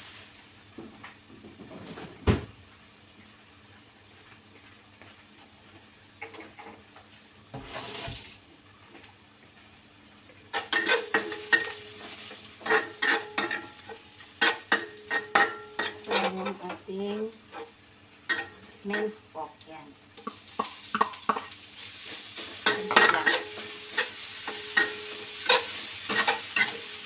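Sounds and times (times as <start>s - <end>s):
garlic sizzling in oil: 2.6s - 27.0s
metal spatula scraping wok: 10.5s - 16.7s, 22.0s - 27.0s.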